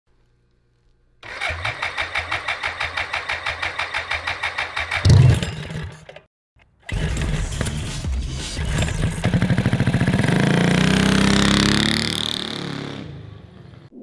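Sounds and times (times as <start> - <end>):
electric starter cranking engine: 1.2 - 6.2, 6.8 - 8.0.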